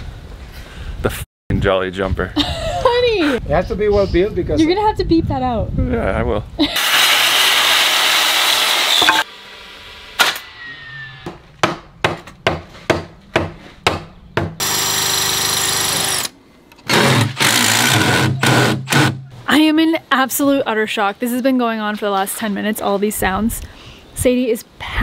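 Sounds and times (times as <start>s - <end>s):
circular saw cutting wood: 6.7s - 11.2s, 14.6s - 19.2s
power drill driving screws: 6.8s - 9.3s, 14.6s - 19.2s.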